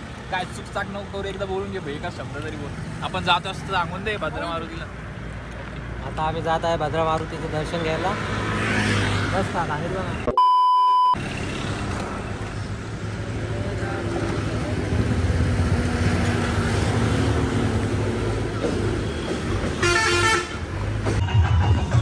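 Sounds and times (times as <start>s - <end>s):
traffic noise: 0.0s - 22.0s
vehicle horn honking: 19.8s - 20.7s.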